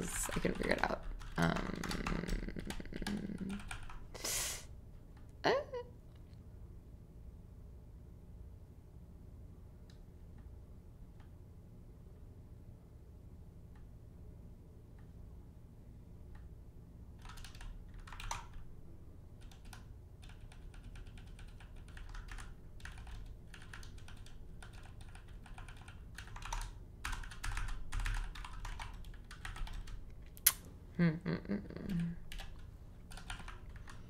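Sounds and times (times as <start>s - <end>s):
typing on computer keyboard: 0.1s - 4.1s, 17.2s - 18.6s, 19.4s - 30.0s, 31.9s - 34.0s.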